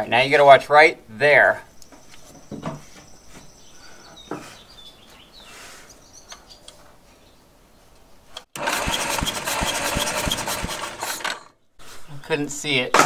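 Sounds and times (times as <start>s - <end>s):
starter motor cranking: 8.6s - 11.6s.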